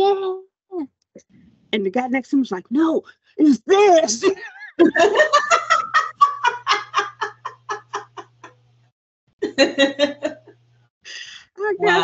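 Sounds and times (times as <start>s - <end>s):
women laughing: 4.1s - 8.5s, 9.4s - 10.6s.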